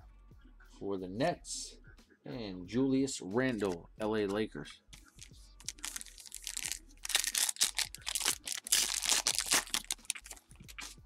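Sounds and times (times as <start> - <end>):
foil wrapper crinkling: 5.2 - 10.9.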